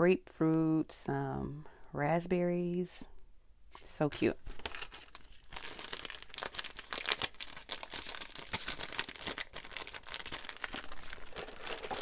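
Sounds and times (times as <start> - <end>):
cellophane crinkling: 4.5 - 12.0.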